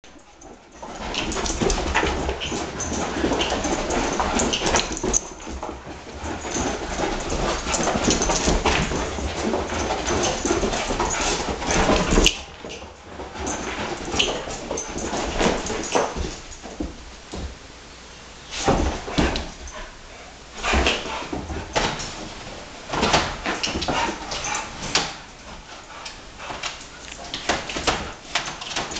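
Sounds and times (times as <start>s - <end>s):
dog scuffling on rug: 0.1s - 17.6s, 18.3s - 28.9s.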